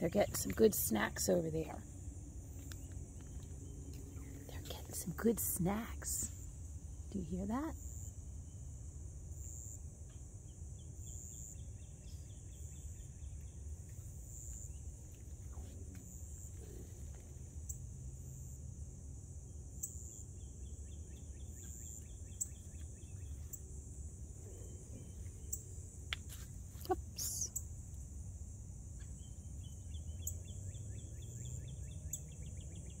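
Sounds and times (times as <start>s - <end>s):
insects trilling: 0.0s - 33.0s
low background rumble: 0.0s - 33.0s
rustle: 21.5s - 28.1s.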